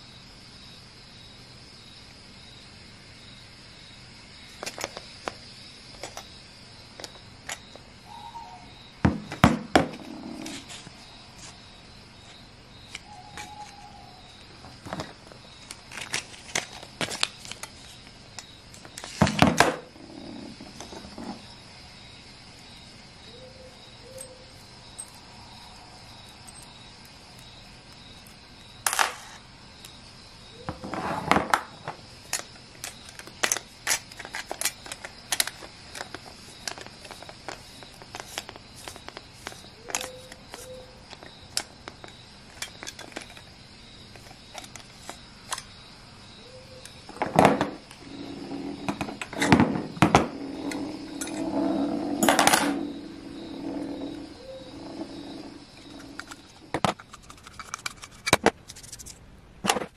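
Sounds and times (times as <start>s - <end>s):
metal parts clicking and scraping: 55.8s - 59.2s.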